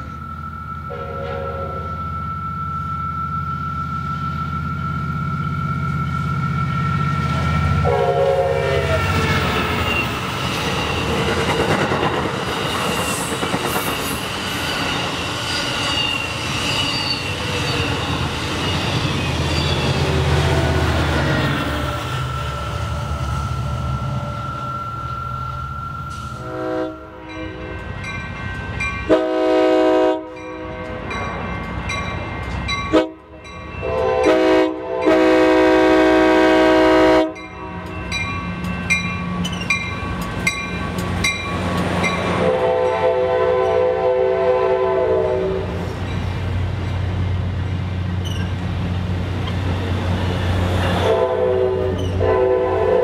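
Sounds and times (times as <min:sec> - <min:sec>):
locomotive engine rumbling: 0:00.0 - 0:53.0
multi-tone train horn blasts: 0:00.8 - 0:02.2, 0:05.2 - 0:09.4, 0:26.4 - 0:27.9, 0:29.0 - 0:31.2, 0:32.9 - 0:37.9, 0:42.3 - 0:45.8, 0:50.9 - 0:53.0
train wheels clattering on rails: 0:08.9 - 0:22.4, 0:37.8 - 0:43.0.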